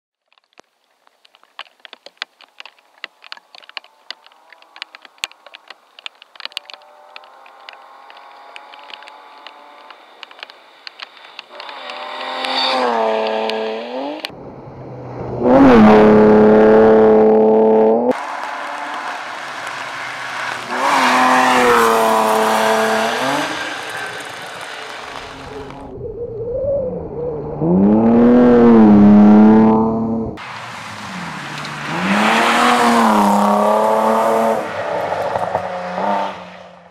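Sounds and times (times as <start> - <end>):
sharp irregular ticks: 0.3 - 14.3
rally car engine approaching: 2.6 - 36.9.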